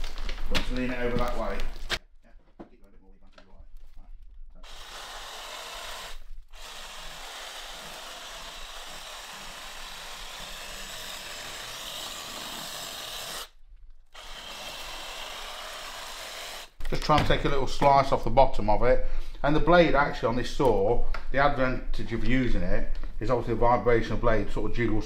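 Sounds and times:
reciprocating saw cutting roots: 4.6s - 16.8s.

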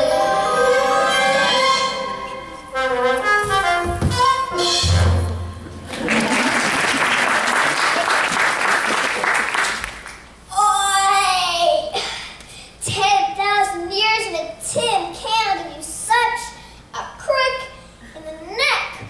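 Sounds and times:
orchestral music with brass: 0.0s - 5.7s
audience applause: 5.9s - 10.2s
child's voice: 10.5s - 12.0s, 12.8s - 19.0s.

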